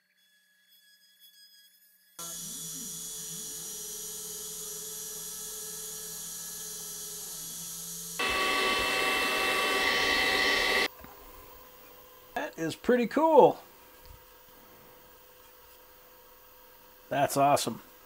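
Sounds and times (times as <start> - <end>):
handheld vacuum cleaner: 2.2 - 10.9
router spindle running: 2.3 - 10.9
stepper motors whining: 2.3 - 10.9.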